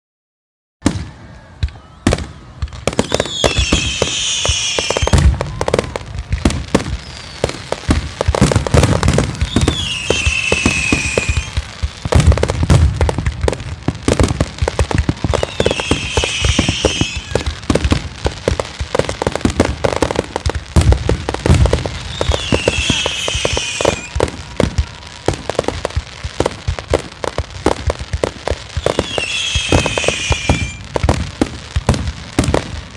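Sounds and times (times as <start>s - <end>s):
fireworks bangs and crackling: 0.8s - 32.9s
high falling whistle: 3.0s - 5.6s, 9.4s - 11.6s, 15.3s - 17.4s, 22.1s - 24.2s, 28.8s - 30.8s.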